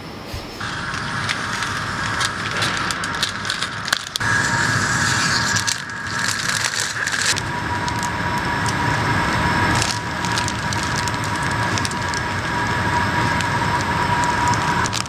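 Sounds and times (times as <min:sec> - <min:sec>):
high machine hum: 0:00.0 - 0:15.0
plastic film crinkling: 0:00.6 - 0:15.0.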